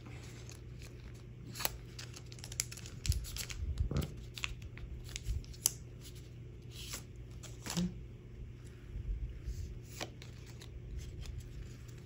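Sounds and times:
foil wrapper crinkling: 0.2 - 6.2.

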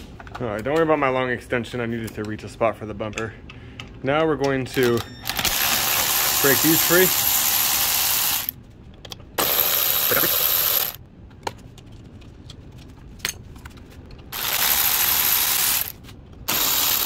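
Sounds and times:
ratchet spinning bolts: 5.4 - 8.5, 9.4 - 11.0, 14.4 - 17.0.

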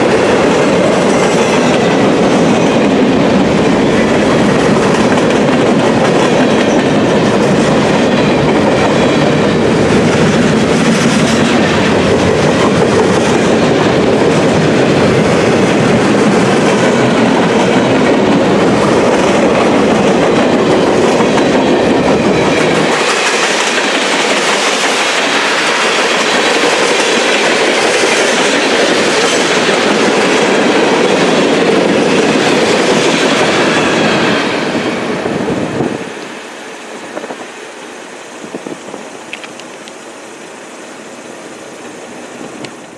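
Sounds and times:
freight train cars rolling on rails: 0.0 - 42.9.

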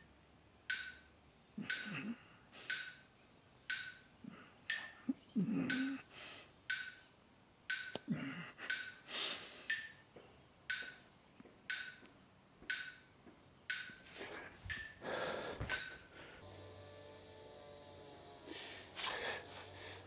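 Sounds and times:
person breathing hard: 8.1 - 9.8, 14.1 - 16.5, 18.5 - 20.0.

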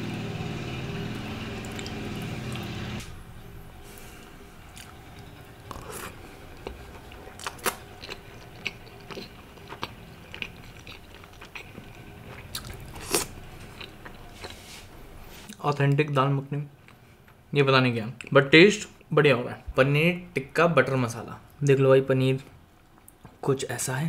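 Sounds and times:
machine droning hum: 0.0 - 24.0
chewing and crunching: 4.2 - 14.7.

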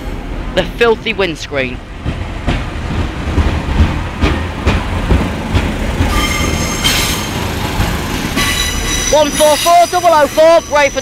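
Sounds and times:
train engine and wheels rumbling: 0.0 - 11.0
high-pitched wheel squeal: 6.1 - 7.3, 8.4 - 11.0.

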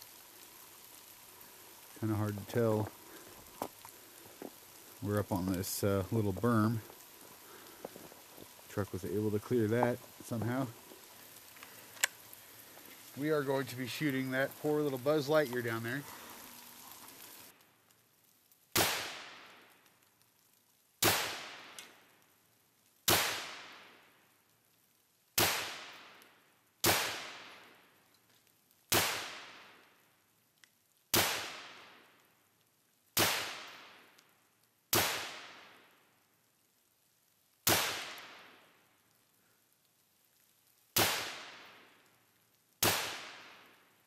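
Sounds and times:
gunshots with long echo: 18.7 - 19.7, 21.0 - 21.8, 23.1 - 24.1, 26.8 - 27.8, 34.9 - 36.0, 37.6 - 38.7, 41.0 - 41.9, 42.8 - 43.7.

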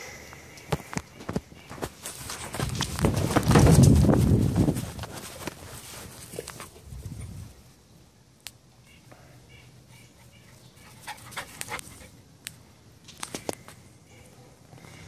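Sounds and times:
dog panting: 10.8 - 12.2.

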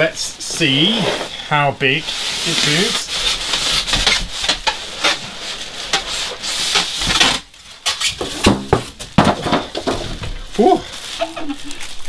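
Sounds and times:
packing and cardboard scraping: 0.0 - 12.0.

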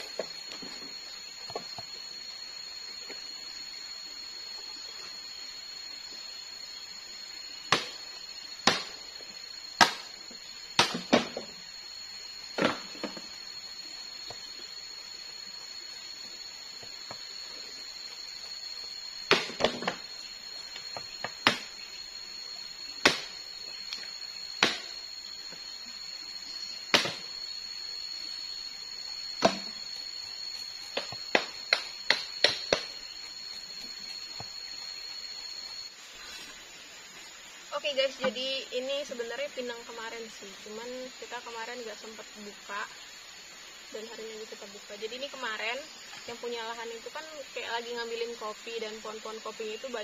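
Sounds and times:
blade chopping into wood: 8.6 - 8.9, 23.0 - 23.3, 24.6 - 24.9, 26.9 - 27.2.

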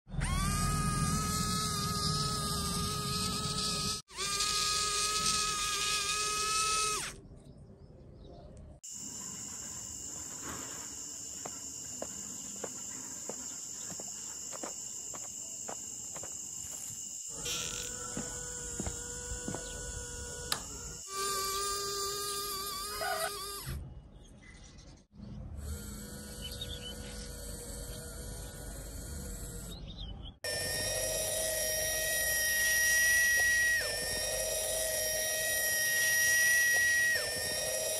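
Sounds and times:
small electric motor whining: 0.1 - 7.2, 8.8 - 23.8, 25.5 - 37.9
thin high-pitched whine: 30.5 - 37.9.

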